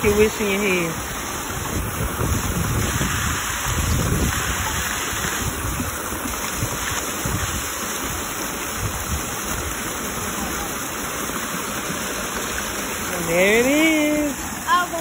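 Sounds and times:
fountain splashing: 0.0s - 15.0s
wind buffeting microphone: 1.0s - 9.8s.

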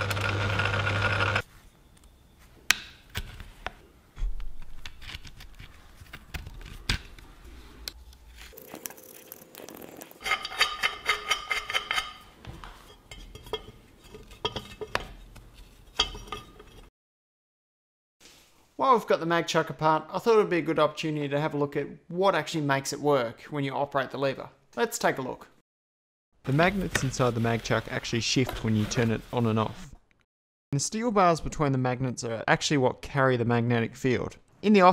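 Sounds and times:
metal lathe running: 0.0s - 1.4s.

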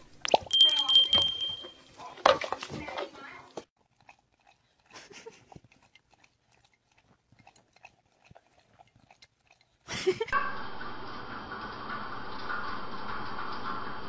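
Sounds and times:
dog lapping at a glass: 3.8s - 10.0s.

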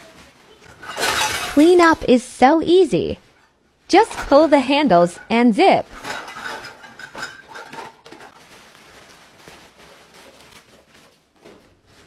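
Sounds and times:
fabric rustling: 3.0s - 12.0s.

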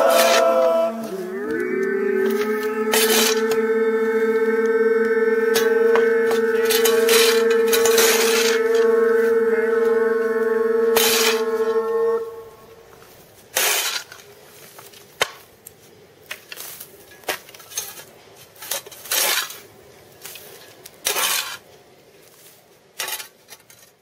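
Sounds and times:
shovel scraping on asphalt: 11.0s - 11.4s, 13.4s - 14.3s, 17.6s - 21.7s.

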